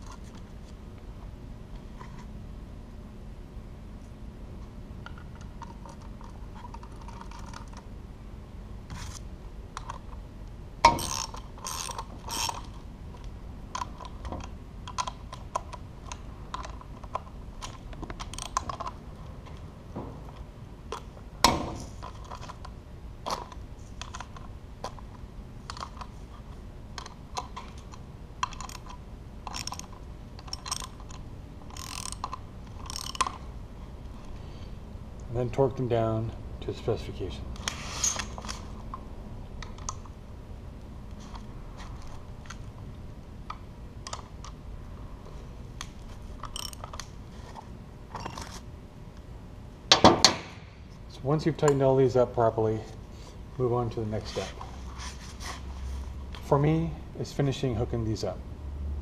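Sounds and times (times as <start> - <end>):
wrench tightening bolts on metal: 10.9 - 12.8, 18.2 - 18.9, 28.4 - 33.4, 46.4 - 47.0.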